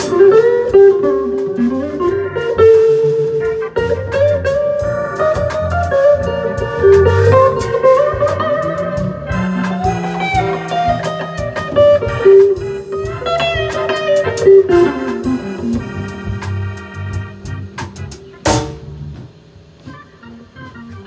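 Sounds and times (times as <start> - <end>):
electric guitar solo: 0.0 - 16.4
live band playing: 0.0 - 21.0.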